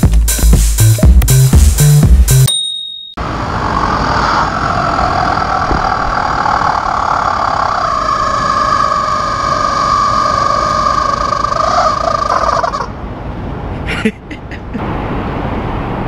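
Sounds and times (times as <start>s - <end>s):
rubber chicken screaming: 4.3s - 12.9s.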